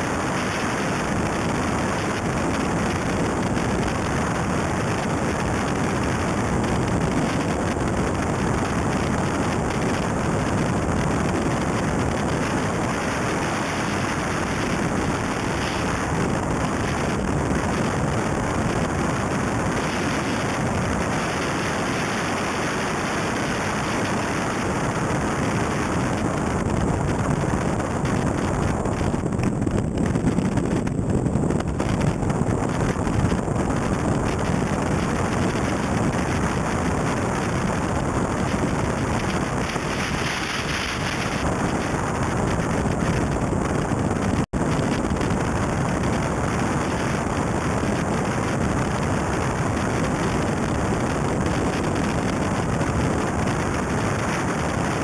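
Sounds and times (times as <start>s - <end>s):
road and tyre noise: 0.0s - 55.0s
wind rush on microphone: 0.0s - 55.0s.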